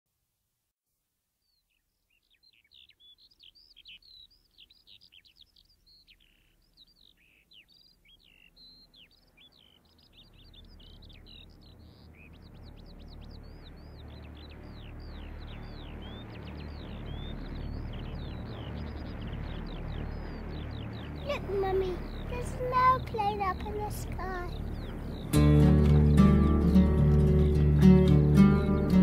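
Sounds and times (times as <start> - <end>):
birds chirping: 1.4 - 29.0
aircraft drone: 8.6 - 29.0.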